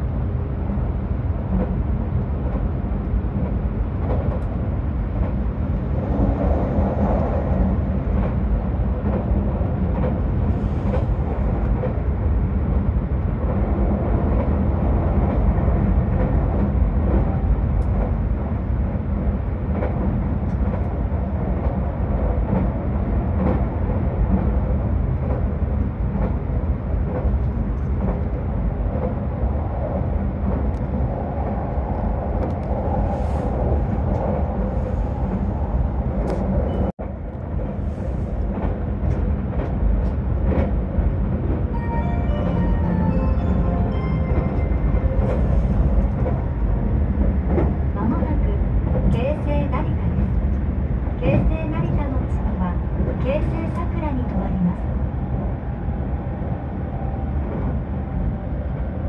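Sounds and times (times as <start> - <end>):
train running noise inside car: 0.0 - 59.0.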